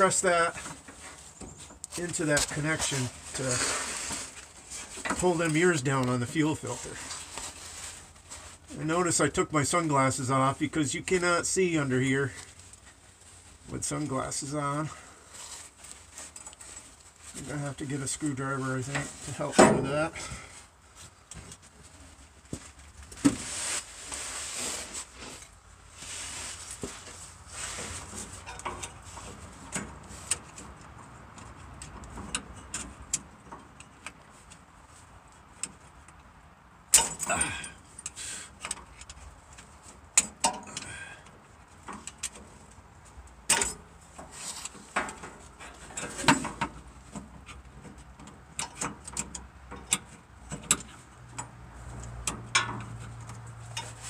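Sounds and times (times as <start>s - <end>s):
hand tool clicking and scraping: 48.2s - 54.0s.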